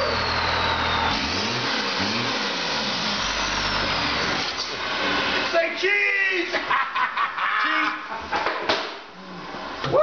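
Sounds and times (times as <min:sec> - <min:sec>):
car engine revving: 0:00.0 - 0:05.6.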